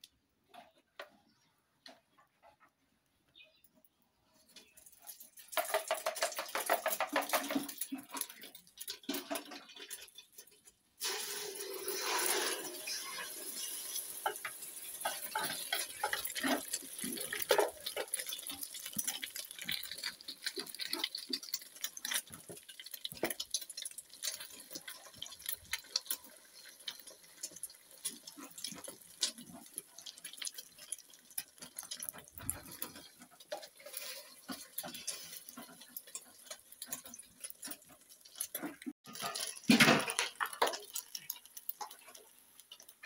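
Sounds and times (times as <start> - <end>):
metal spoon scraping metal pot: 5.4 - 22.4.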